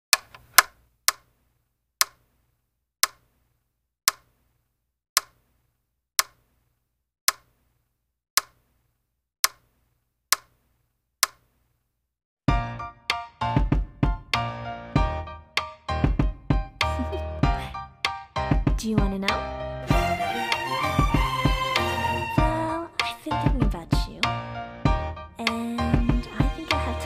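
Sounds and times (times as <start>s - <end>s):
wall clock ticking: 3.0s - 3.2s, 4.1s - 4.3s, 6.2s - 6.4s.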